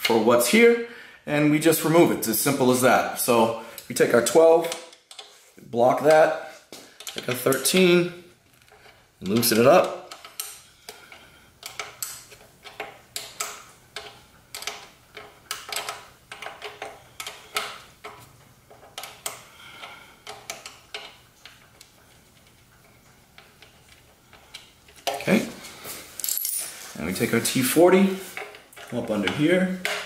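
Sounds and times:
wrenches clicking on metal bolt: 8.6 - 21.8.

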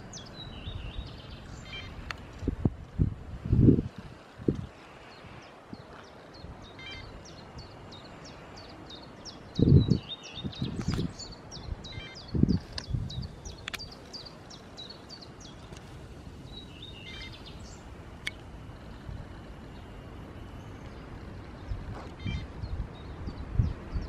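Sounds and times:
songbird chirping: 0.0 - 2.5, 4.5 - 24.0
sharp clicks: 12.6 - 14.2.

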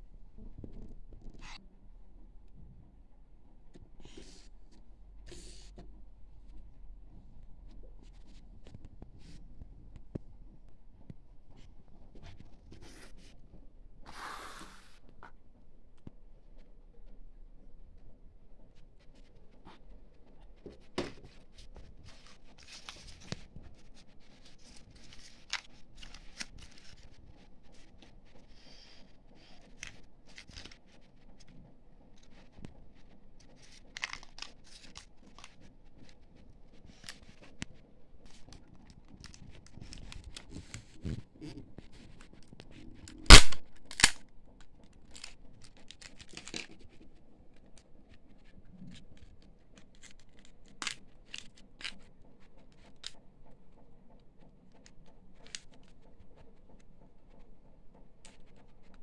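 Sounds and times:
small plastic clicks: 42.5 - 53.3
loud sharp snaps: 43.3 - 44.2
plastic wrappers crinkling and tearing: 45.0 - 47.0.

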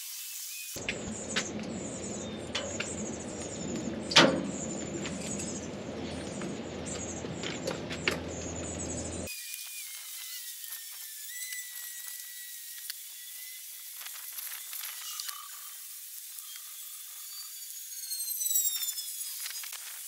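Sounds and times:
small birds chirping: 0.8 - 9.3
sharp clack on metal shelf: 4.1 - 4.6.

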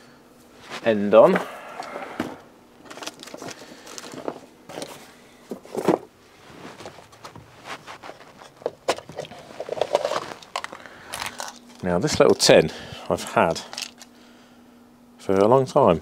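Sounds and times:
small objects clicking and rustling: 2.8 - 5.0, 8.1 - 12.6, 13.6 - 14.1.

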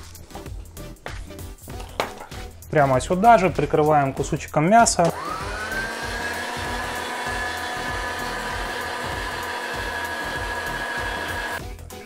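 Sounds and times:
electric meat grinder whining: 5.1 - 11.6.

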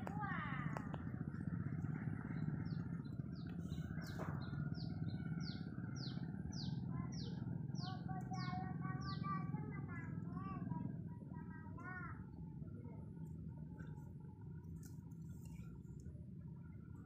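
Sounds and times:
low hum: 0.0 - 17.0
bird chirping: 0.8 - 9.4.

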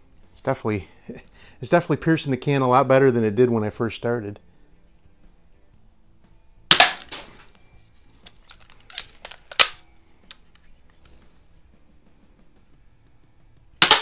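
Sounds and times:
pistol being cocked: 6.7 - 7.4, 8.3 - 10.4
bb pistol firing snap: 6.7 - 7.5, 9.0 - 10.4, 13.8 - 14.0.

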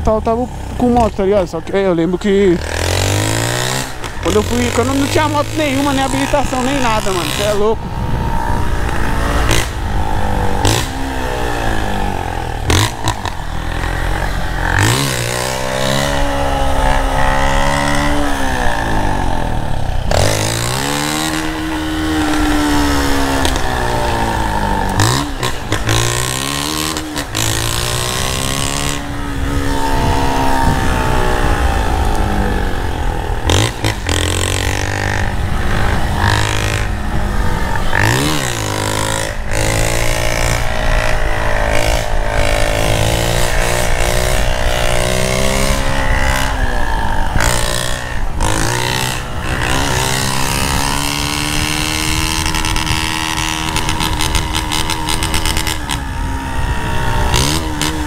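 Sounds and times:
motorcycle engine revving: 0.0 - 58.0
wind rushing over microphone: 0.0 - 58.0.

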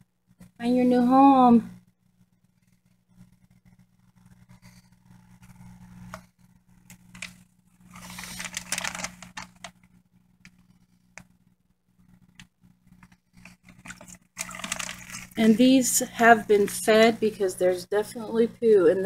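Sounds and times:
low steady hum: 0.0 - 19.0
plastic bag crinkling and rustling: 6.9 - 9.9, 13.0 - 15.8.

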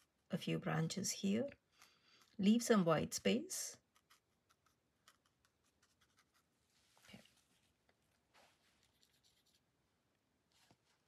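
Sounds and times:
paintbrush tapping and scratching on paper: 3.8 - 7.2
brush rubbing on paper: 8.3 - 9.7.

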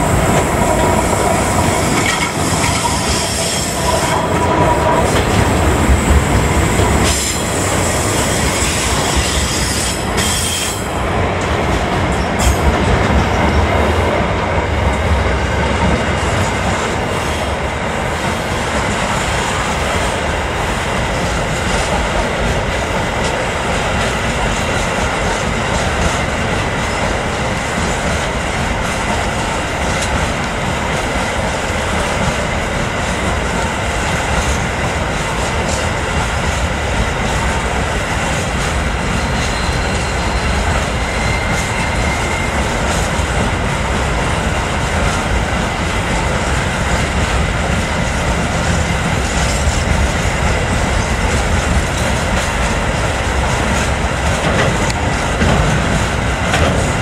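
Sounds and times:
clickety-clack over rail joints: 0.0 - 57.0
train wheels rumbling on rails: 0.0 - 57.0
high wheel squeal: 39.1 - 42.7.

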